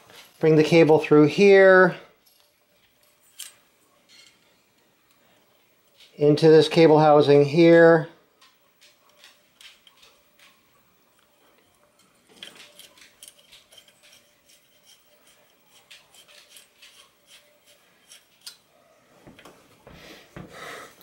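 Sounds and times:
cable clicking and scraping: 12.0 - 18.6.

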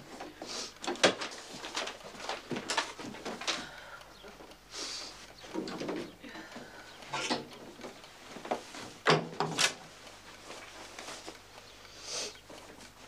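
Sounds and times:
short hiss: 4.7 - 5.1, 11.9 - 12.3
wooden knocks and clunks: 8.5 - 9.6.

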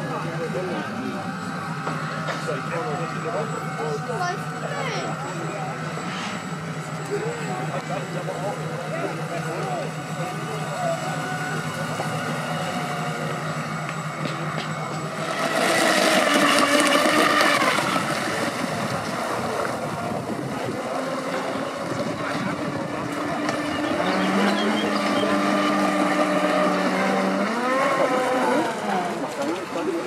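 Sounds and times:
model boat motor whine: 0.0 - 30.0.

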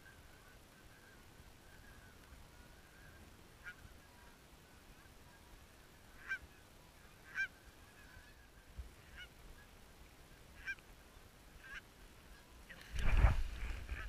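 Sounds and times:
geese honking: 0.0 - 9.7, 10.6 - 10.8, 11.5 - 12.6.

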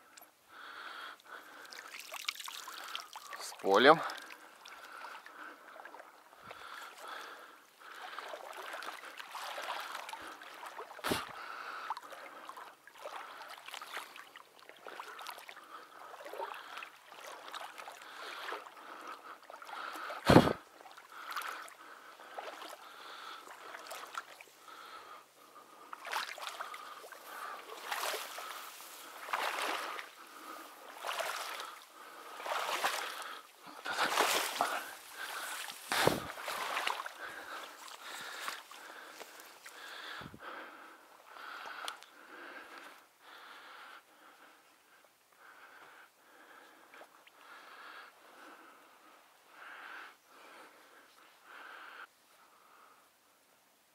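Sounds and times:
water sloshing and splashing: 1.3 - 40.3.

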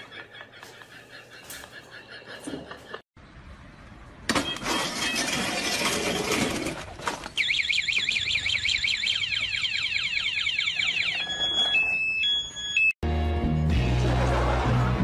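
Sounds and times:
scooter falling over: 4.3 - 7.4
warbling alarm siren: 7.4 - 13.0.

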